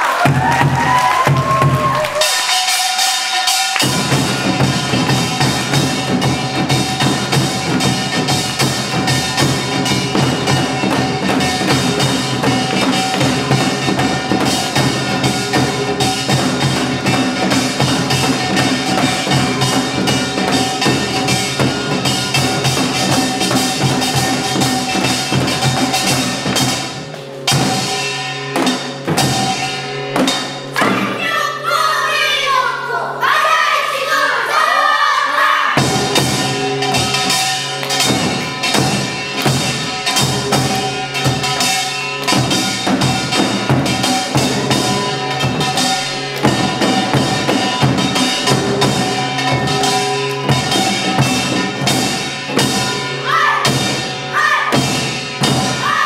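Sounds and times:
drums beating a dense rhythm: 0.0 - 31.6, 35.8 - 56.0
children singing: 30.8 - 36.4, 52.8 - 56.0.

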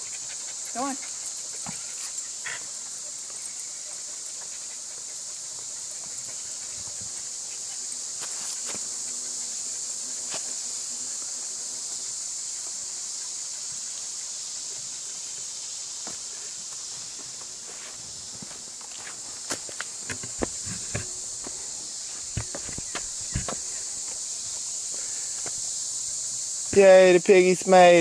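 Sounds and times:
insect chorus hissing: 0.0 - 28.0
footsteps on log footbridge: 14.7 - 25.6.

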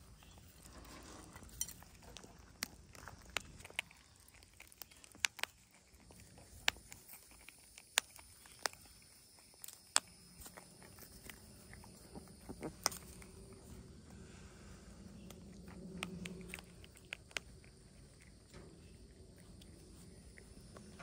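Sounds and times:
animals crunching hard pellets: 0.0 - 21.0.

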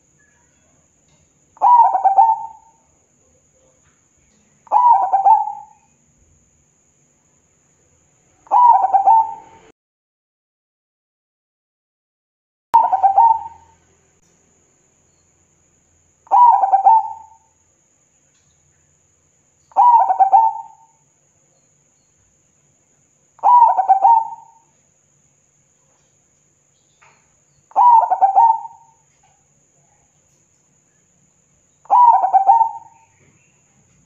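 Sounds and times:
dove cooing: 1.6 - 2.8, 4.7 - 5.8, 8.4 - 9.7, 12.8 - 13.8, 16.3 - 17.4, 19.7 - 20.9, 23.4 - 24.7, 27.7 - 29.0, 31.9 - 33.3.

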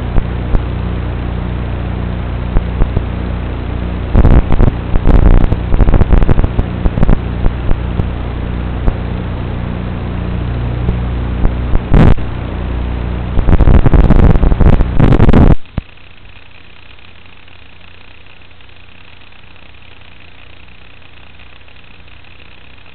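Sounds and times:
wind blasts on microphone: 4.2 - 7.8, 11.8 - 12.3, 13.4 - 15.6.

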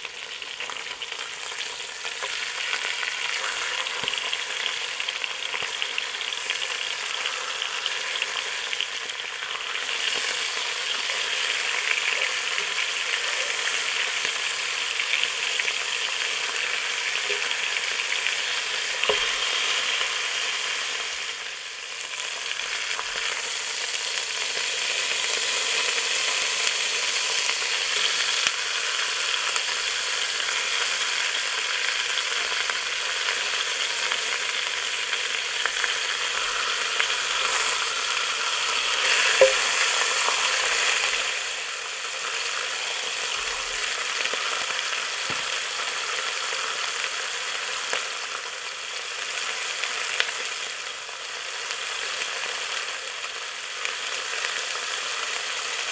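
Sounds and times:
meat sizzling in a pot: 0.0 - 55.9
metal tongs clicking on pot: 39.4 - 39.8.

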